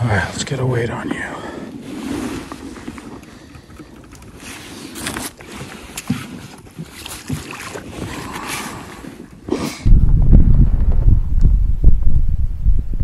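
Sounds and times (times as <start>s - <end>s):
water splashing against kayak: 1.1s - 12.5s
wind rumbling on microphone: 9.8s - 13.0s.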